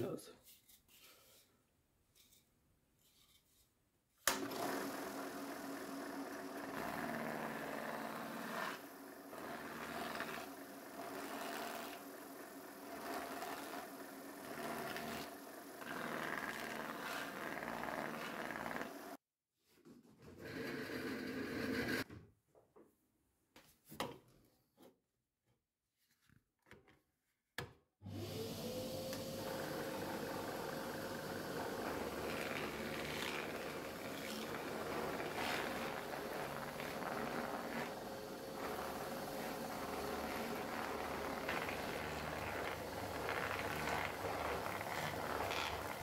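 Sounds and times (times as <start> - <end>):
drill press motor hum: 4.3 - 19.1, 28.1 - 46.0.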